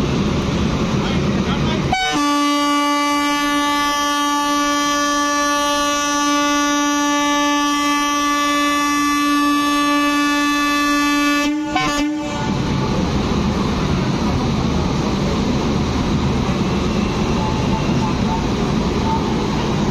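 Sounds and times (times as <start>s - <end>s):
locomotive air horn blast: 1.9s - 12.6s
steady rush of noise: 12.3s - 19.9s.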